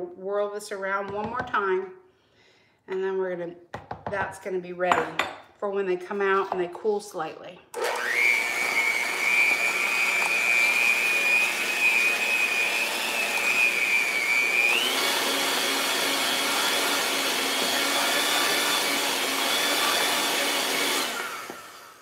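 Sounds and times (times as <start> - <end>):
electric hand mixer whine: 7.8 - 22.0.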